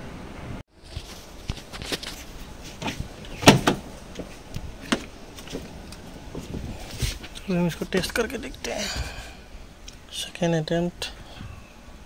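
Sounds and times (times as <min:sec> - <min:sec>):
car door clunking shut: 0:02.8 - 0:03.9
handling knocks: 0:02.8 - 0:05.7.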